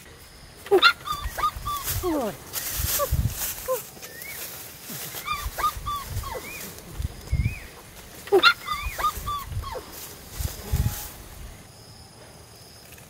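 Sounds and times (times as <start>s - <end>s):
puppy whimpering and yelping: 0.7s - 1.9s, 5.2s - 6.7s, 8.3s - 9.9s.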